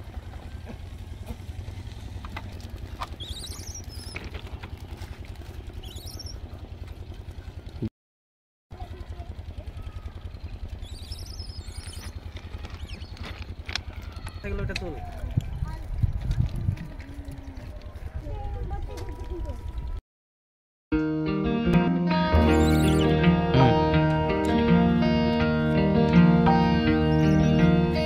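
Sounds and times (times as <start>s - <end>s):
motorcycle engine idling: 0.0s - 7.9s, 8.7s - 18.8s, 22.4s - 23.0s
short high chirps: 22.4s - 23.7s.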